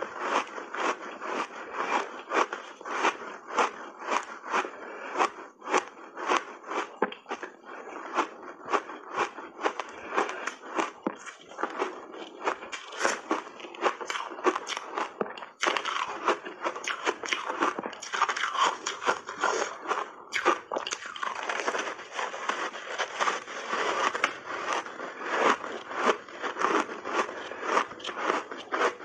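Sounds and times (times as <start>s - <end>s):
ice crunching and chewing: 0.0s - 29.0s.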